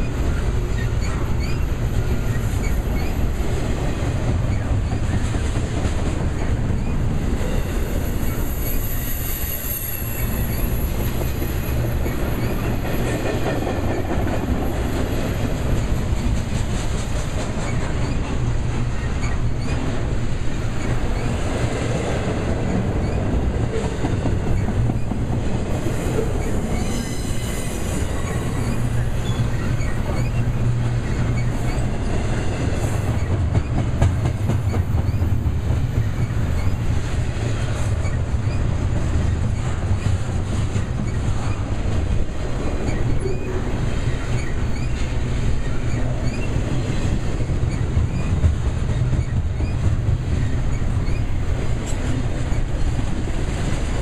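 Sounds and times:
train wheels rumbling on rail: 0.0 - 54.0
high wheel squeal: 7.5 - 12.8, 25.9 - 32.0, 42.9 - 46.6.

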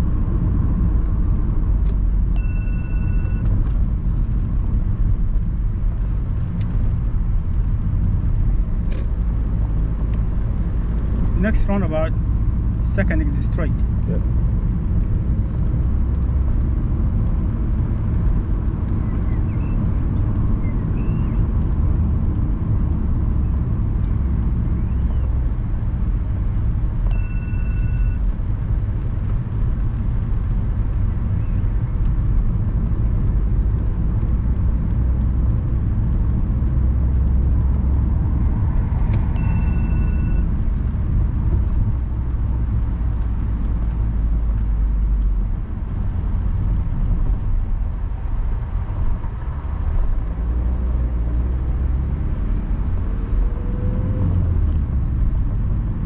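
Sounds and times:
car engine and tyre rumble: 0.0 - 56.0
short electronic chime: 39.4 - 40.5.

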